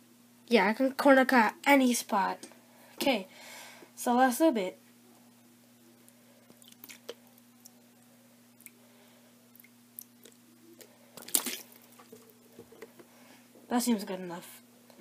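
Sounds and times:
steady low hum: 0.0s - 15.0s
lubricant bottle squishing: 6.5s - 7.7s, 9.6s - 13.0s.

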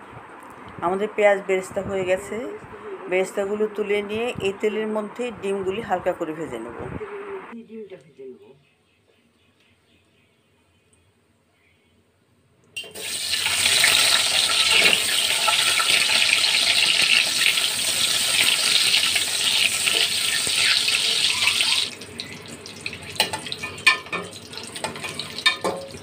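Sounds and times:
eggs sizzling in hot oil: 12.8s - 26.0s.

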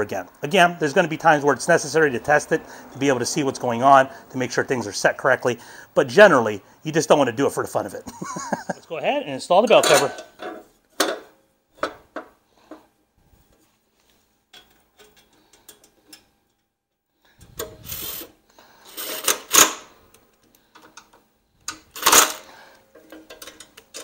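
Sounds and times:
clicks and knocks of handled part: 22.9s - 24.0s.

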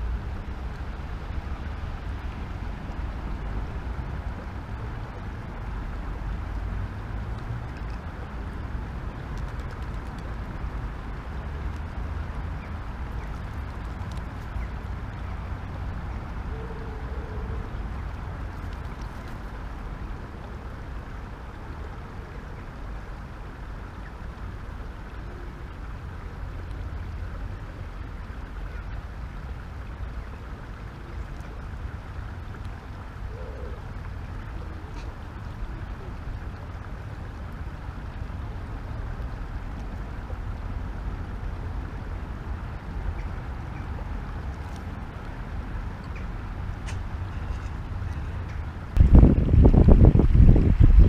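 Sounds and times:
wind on microphone: 46.8s - 51.0s.

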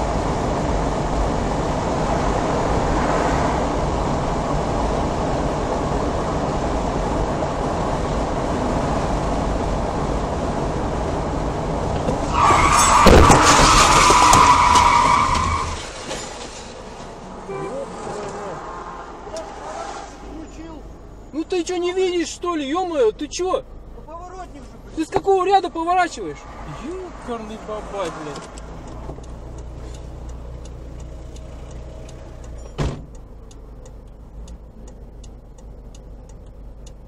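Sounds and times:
car road and engine noise: 0.0s - 37.0s
tyres squealing under braking: 12.1s - 20.9s
sharp collision thump: 32.7s - 33.1s.

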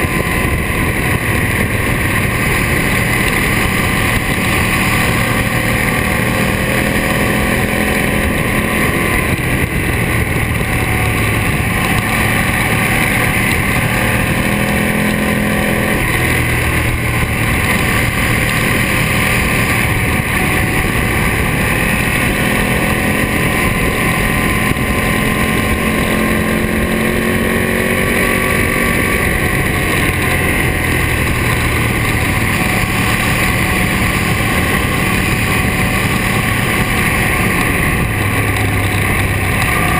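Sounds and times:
motorcycle engine revving: 0.0s - 39.9s
wind on microphone: 0.0s - 39.9s.

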